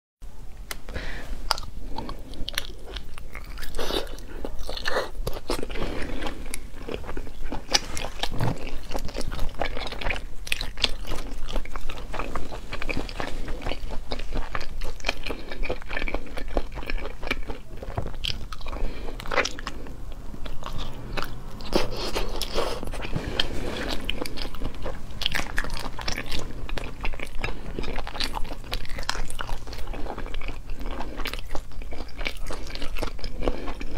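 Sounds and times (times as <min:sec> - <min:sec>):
person chewing crunchy food: 0:01.0 - 0:33.9.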